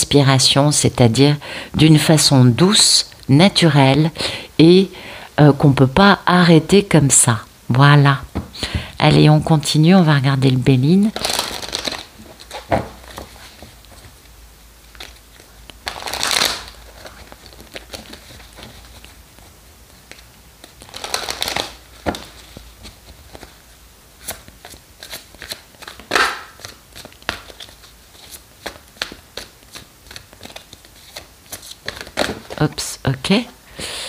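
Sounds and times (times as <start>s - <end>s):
cards being shuffled: 11.2s - 32.8s.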